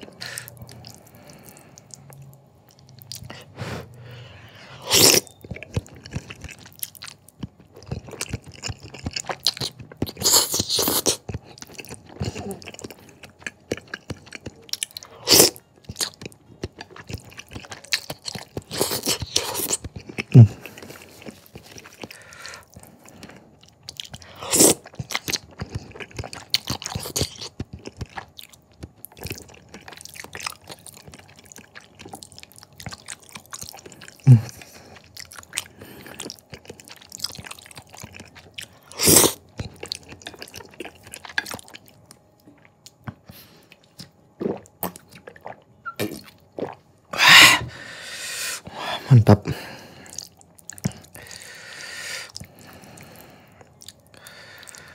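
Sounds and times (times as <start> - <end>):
wet chewing and lip smacks: 15.7 - 46.8, 50.0 - 51.5, 52.2 - 54.9
slurping noodles: 44.4 - 49.0.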